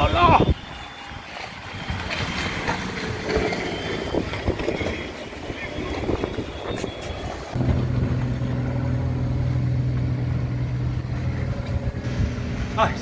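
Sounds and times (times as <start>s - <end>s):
engine humming: 0.0s - 13.0s
low rumble: 2.8s - 13.0s.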